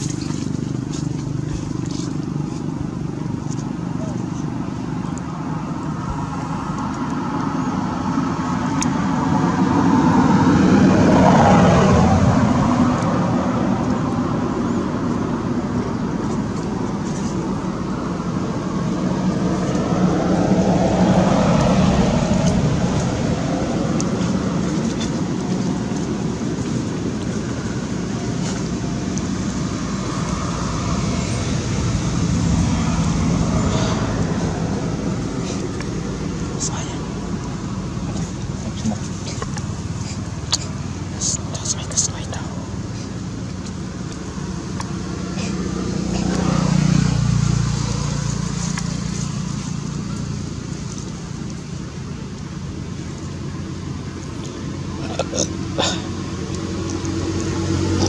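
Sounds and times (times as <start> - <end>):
road traffic rumble: 0.0 - 58.0.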